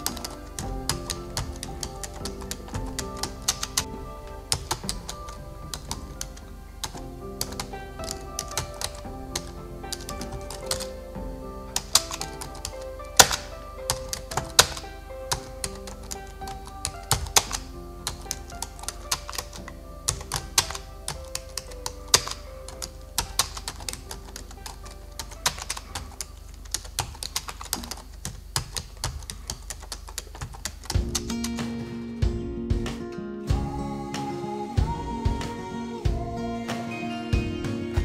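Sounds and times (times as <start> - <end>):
soft background music: 0.0 - 27.6, 30.9 - 38.0
typewriter key clicks: 11.8 - 31.6.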